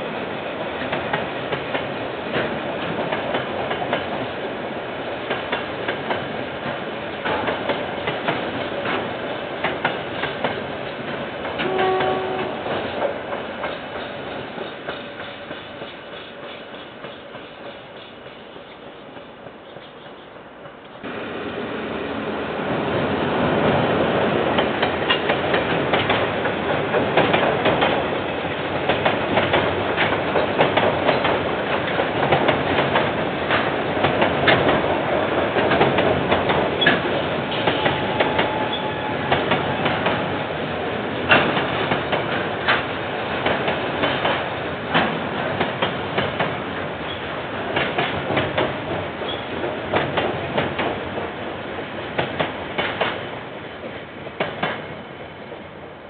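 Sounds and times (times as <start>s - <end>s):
train wagons rumbling: 0.0s - 56.0s
wheels clicking over rail joints: 41.2s - 51.3s, 52.2s - 53.2s.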